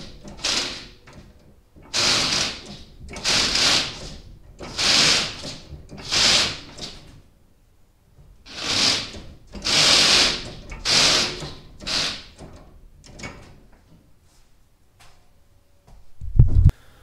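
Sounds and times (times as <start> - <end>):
tyres scrubbing on floor: 1.9 - 7.0, 8.5 - 12.4.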